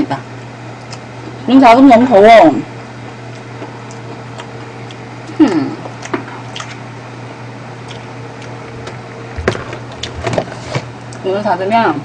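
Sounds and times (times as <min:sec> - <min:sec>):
steady low hum: 0:00.0 - 0:12.0
woman chewing: 0:03.3 - 0:06.9, 0:07.8 - 0:08.7.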